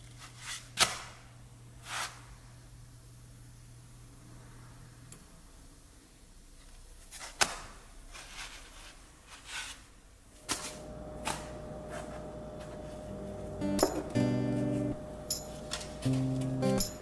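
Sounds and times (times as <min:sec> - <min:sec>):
faint steady hum: 0:10.2 - 0:17.0.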